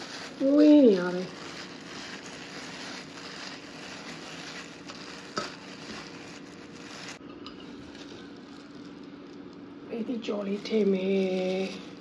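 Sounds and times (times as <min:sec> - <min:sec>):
food sizzling in a frying pan: 0:00.0 - 0:09.2.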